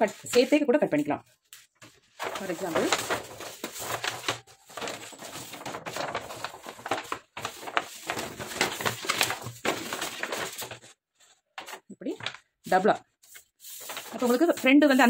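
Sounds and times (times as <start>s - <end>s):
stiff paper rustling and crinkling: 0.0s - 15.0s.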